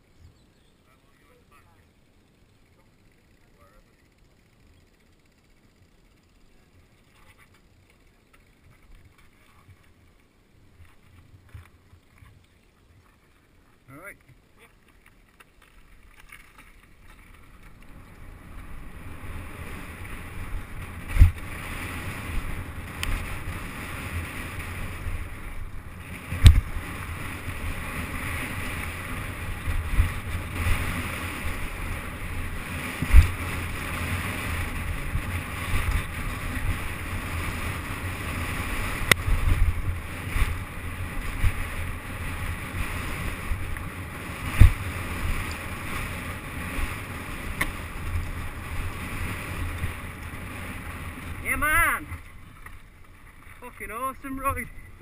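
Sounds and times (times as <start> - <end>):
mountain bike tyre and frame noise: 0.0 - 55.0
bike thumping over bumps: 15.5 - 51.4
wind buffeting camera: 15.6 - 55.0.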